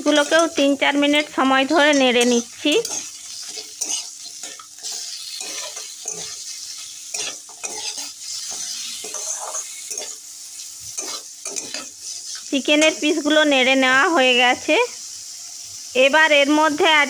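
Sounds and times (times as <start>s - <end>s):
metal spatula scraping pan: 0.0s - 10.2s, 10.8s - 13.1s
food sizzling in oil: 0.0s - 17.0s.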